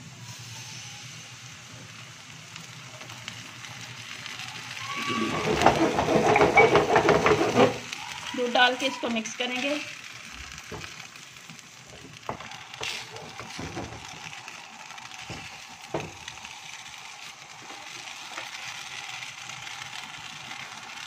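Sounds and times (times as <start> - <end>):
milk simmering in a pan: 0.0 - 21.0
spatula scraping a pan: 5.1 - 8.0.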